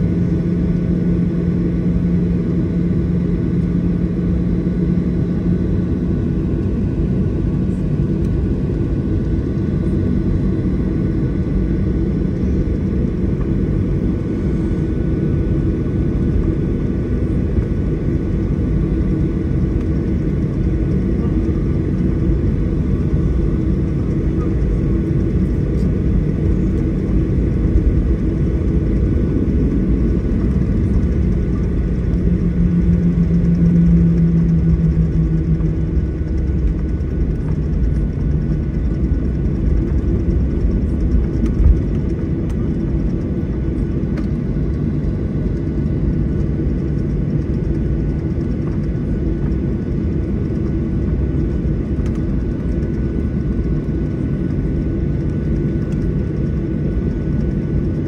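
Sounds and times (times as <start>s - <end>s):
deep hum: 0.0s - 58.0s
faint steady whine: 0.0s - 58.0s
jet airliner cabin rumble: 0.0s - 58.0s.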